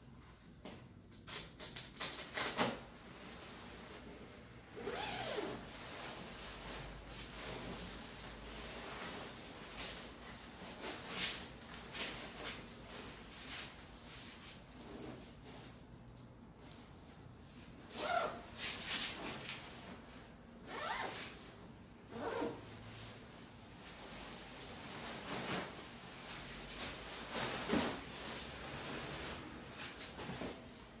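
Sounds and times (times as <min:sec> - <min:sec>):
sleeping bag rustling: 0:03.1 - 0:16.0, 0:17.6 - 0:31.0.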